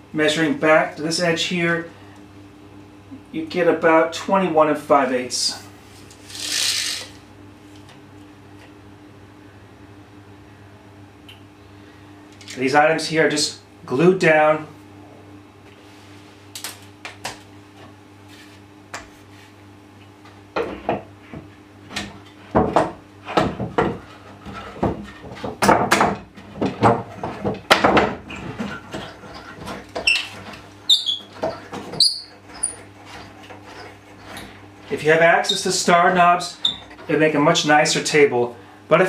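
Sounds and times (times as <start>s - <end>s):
wooden knocks and clatter: 21.9s - 30.6s, 31.3s - 34.4s
wooden knob squeaking: 30.0s - 34.4s, 36.6s - 37.0s.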